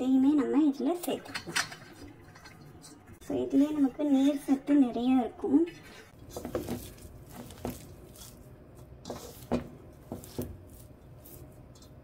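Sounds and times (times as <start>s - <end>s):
hand mixing flour rustling: 6.1s - 12.0s
knocks and crunches in bowl: 6.2s - 12.0s.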